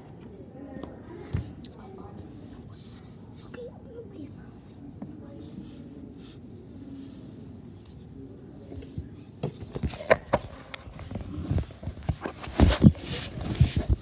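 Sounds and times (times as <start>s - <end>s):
fabric rubbing on microphone: 10.0s - 14.0s.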